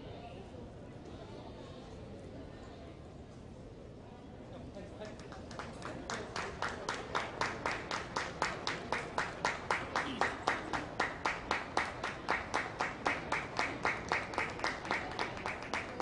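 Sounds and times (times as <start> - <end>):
hands clapping rhythmically: 5.0 - 16.0.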